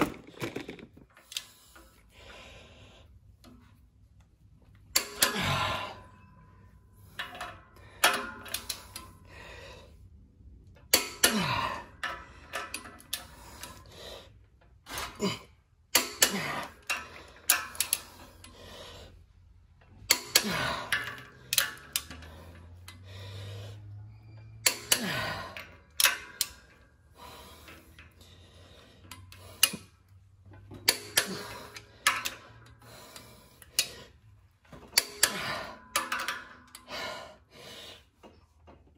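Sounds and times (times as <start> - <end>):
torque wrench creak and click: 15.9 - 18.6, 29.1 - 30.0.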